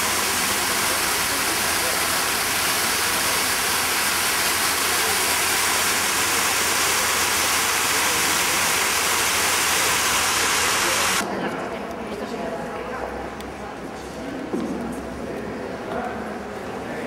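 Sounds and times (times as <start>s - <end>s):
fountain water splashing: 0.0s - 11.2s.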